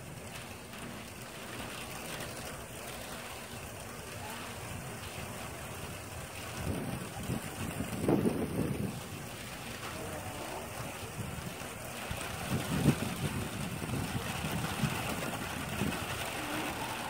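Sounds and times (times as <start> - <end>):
steady hiss: 0.0 - 17.0
wind buffeting microphone: 0.0 - 17.0.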